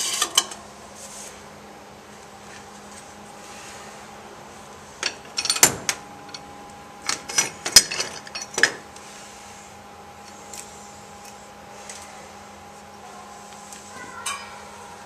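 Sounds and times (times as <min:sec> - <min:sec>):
steady hum: 0:00.0 - 0:15.0
metal parts clinking: 0:05.0 - 0:06.4, 0:07.0 - 0:08.8.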